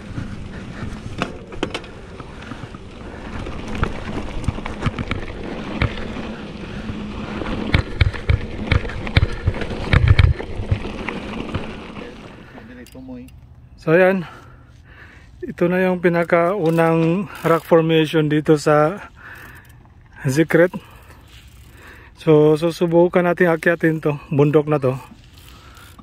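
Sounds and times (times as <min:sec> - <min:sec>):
tyres crunching over stones: 0:00.0 - 0:12.8
bike rattling and knocking: 0:00.0 - 0:13.4.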